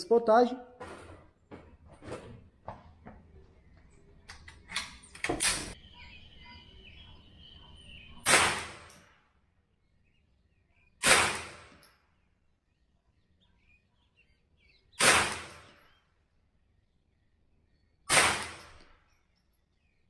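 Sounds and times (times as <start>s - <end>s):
rifle shots: 8.2s - 9.0s, 11.0s - 11.8s, 15.0s - 15.8s, 18.1s - 18.9s.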